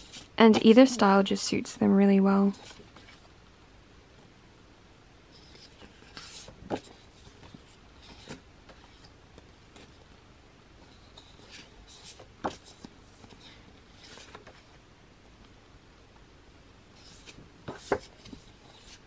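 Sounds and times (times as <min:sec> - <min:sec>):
paper pages rustling and sliding: 0:00.0 - 0:00.4, 0:05.4 - 0:09.1, 0:10.8 - 0:14.8, 0:17.0 - 0:19.0.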